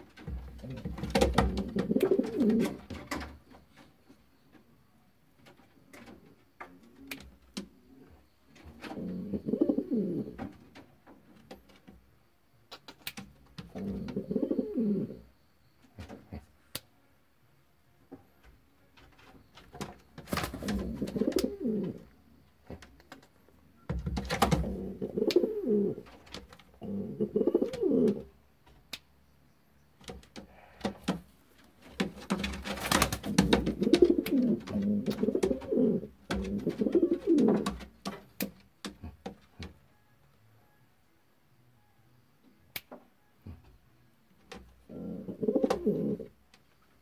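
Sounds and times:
pigeon cooing: 0:00.6 - 0:02.8, 0:08.8 - 0:10.5, 0:13.7 - 0:15.3, 0:20.3 - 0:22.1, 0:24.4 - 0:26.2, 0:26.8 - 0:28.3, 0:32.3 - 0:37.9, 0:44.9 - 0:46.4.

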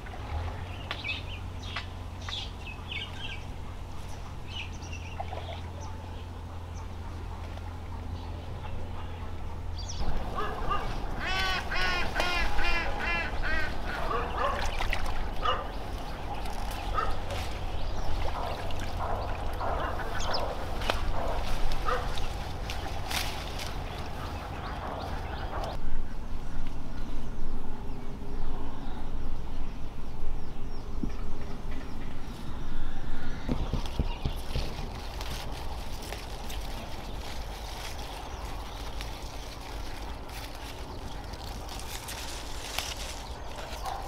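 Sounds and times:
ducks quacking: 0:10.0 - 0:16.2.

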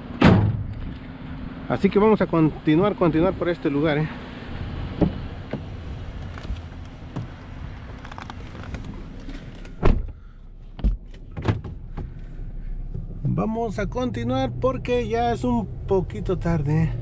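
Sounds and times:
car door shutting thump: 0:00.2 - 0:00.8, 0:05.0 - 0:05.8, 0:09.6 - 0:12.2
small knocks inside cab: 0:05.0 - 0:07.4, 0:09.7 - 0:12.2.

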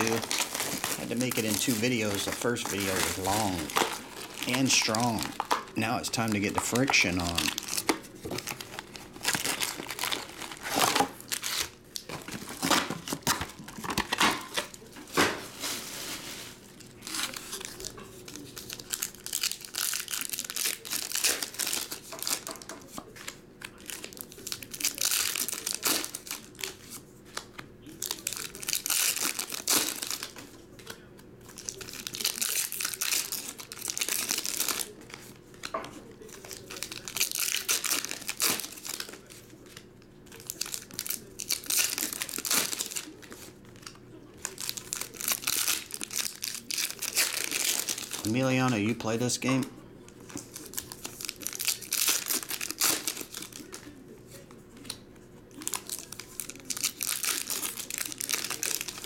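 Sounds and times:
foil wrappers tearing and crinkling: 0:00.0 - 0:49.6, 0:50.2 - 0:59.0.

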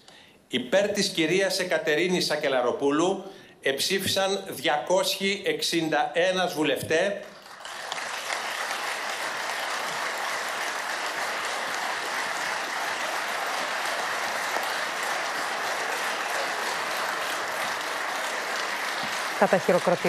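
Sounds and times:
crowd applauding: 0:07.4 - 0:20.0.

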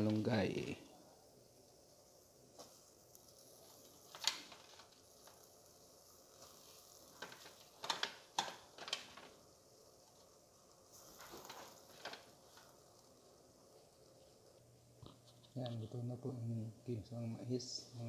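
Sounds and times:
soup simmering: 0:01.0 - 0:15.6
crackling pops of bubbling broth: 0:03.9 - 0:05.7, 0:06.3 - 0:09.5.

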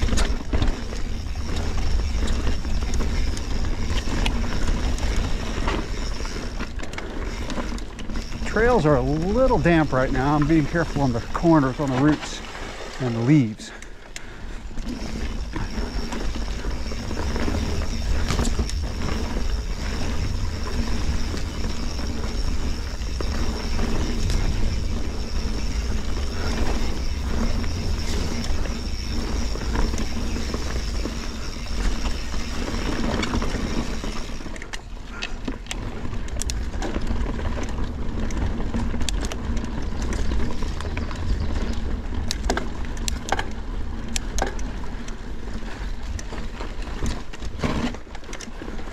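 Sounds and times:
freehub ticking buzz: 0:00.0 - 0:11.9, 0:14.1 - 0:34.8
bike rattling and knocking: 0:00.0 - 0:12.4, 0:13.3 - 0:48.9
bike tyre rumble: 0:00.0 - 0:48.9
wind on microphone: 0:14.9 - 0:34.4.

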